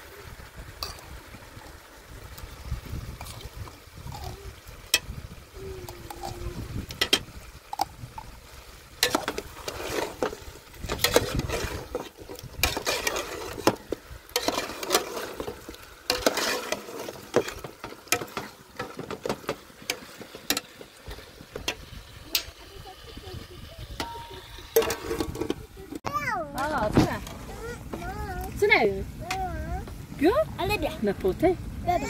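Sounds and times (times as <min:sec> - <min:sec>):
meat sizzling: 0:00.0 - 0:25.8
metal spoon scraping a pot: 0:09.0 - 0:22.5, 0:24.0 - 0:25.6.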